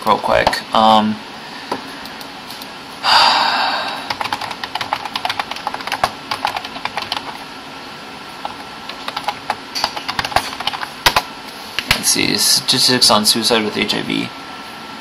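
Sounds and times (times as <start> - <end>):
breathy rush of air: 3.0 - 4.2
computer keyboard typing: 4.1 - 7.4, 8.4 - 11.3.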